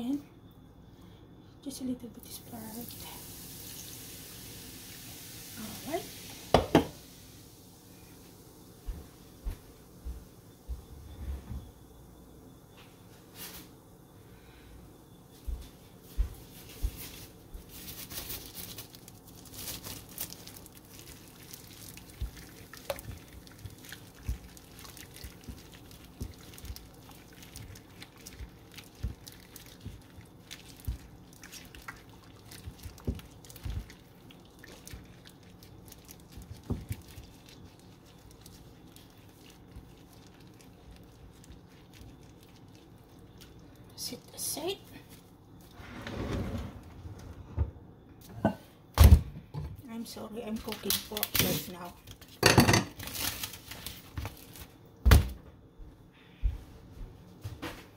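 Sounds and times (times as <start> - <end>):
meat mixed in wet marinade: 16.5 - 45.8.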